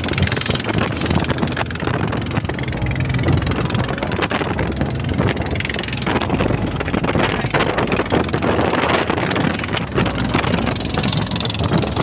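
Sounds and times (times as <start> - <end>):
boat motor running: 0.0 - 12.0
water splashing along hull: 0.0 - 12.0
wind buffeting microphone: 0.0 - 12.0.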